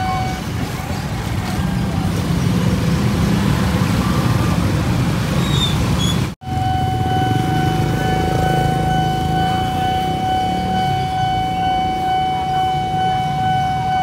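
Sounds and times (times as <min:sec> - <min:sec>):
level crossing warning tone: 0:00.0 - 0:00.7, 0:06.4 - 0:14.0
motorcycle and car engines: 0:00.0 - 0:14.0.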